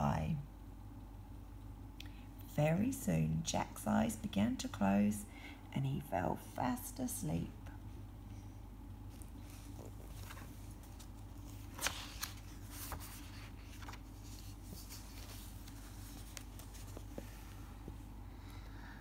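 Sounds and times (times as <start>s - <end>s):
low steady hum: 0.0s - 19.0s
book pages turning: 9.1s - 18.0s.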